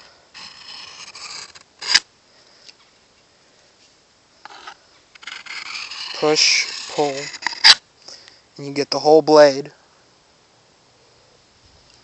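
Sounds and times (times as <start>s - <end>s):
knife scraping on sharpening stone: 0.0s - 2.0s, 4.5s - 7.8s.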